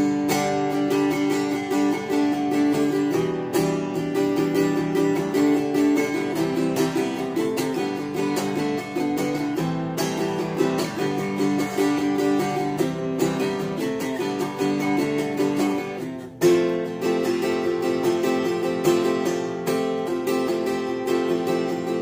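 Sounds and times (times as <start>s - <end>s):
acoustic guitar picked notes: 0.0s - 22.0s
strummed guitar chord: 0.0s - 22.0s.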